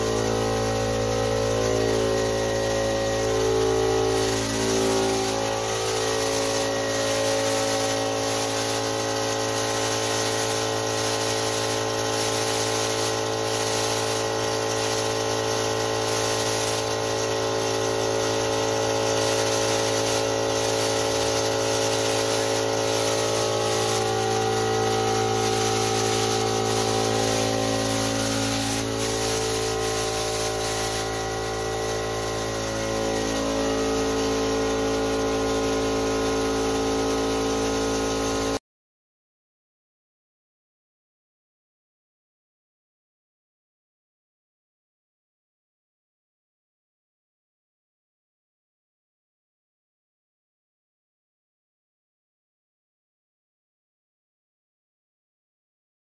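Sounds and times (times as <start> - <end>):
air compressor humming: 0.0 - 38.6
spray gun hissing: 0.0 - 38.6.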